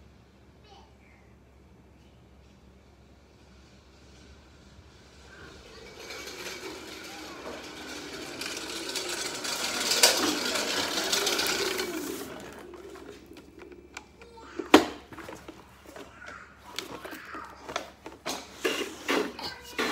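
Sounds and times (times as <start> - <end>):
wheels rolling on concrete: 3.0 - 19.9
electric motors whining: 5.0 - 18.2.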